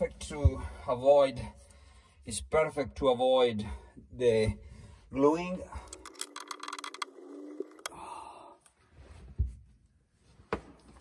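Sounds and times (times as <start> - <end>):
wrench clicking rapidly: 5.9 - 7.9
breathy sigh: 7.9 - 8.7.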